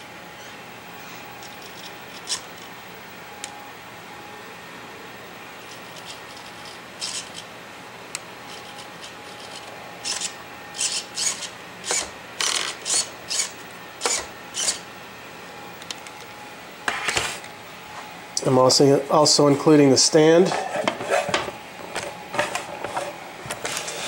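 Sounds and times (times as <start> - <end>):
electric toy truck motor whirs: 1.4 - 2.7, 5.6 - 7.4, 8.5 - 14.8.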